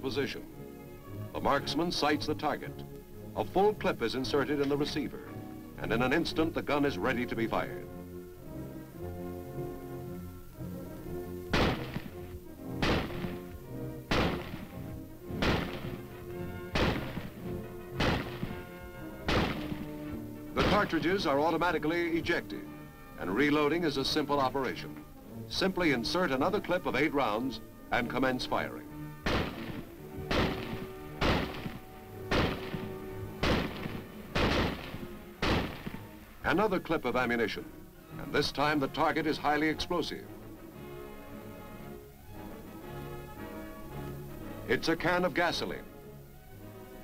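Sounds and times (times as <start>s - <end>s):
orchestral background music: 0.0s - 47.0s
rifle shots: 11.5s - 21.5s, 29.2s - 36.2s.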